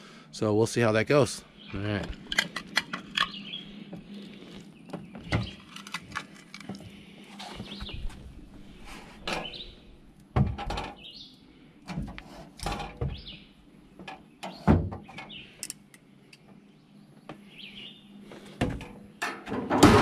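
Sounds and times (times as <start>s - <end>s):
bird chirping: 1.4s - 5.8s, 7.4s - 8.2s, 9.3s - 9.9s, 10.9s - 11.4s, 13.0s - 15.6s, 16.4s - 18.1s
metal door and grate clunks: 18.7s - 20.0s.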